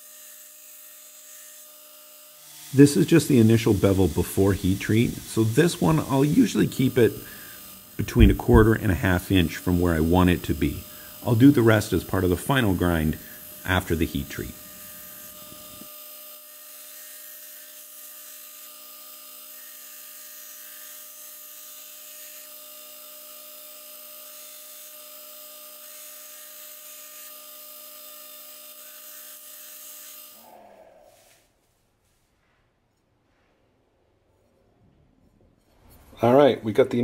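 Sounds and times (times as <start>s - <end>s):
belt grinder motor hum: 0.0s - 30.4s
blade grinding hiss: 2.5s - 15.9s.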